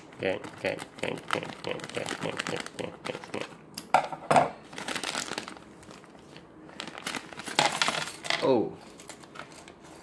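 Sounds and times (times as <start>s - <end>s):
plastic bag crinkling: 0.4s - 3.4s, 4.7s - 8.3s.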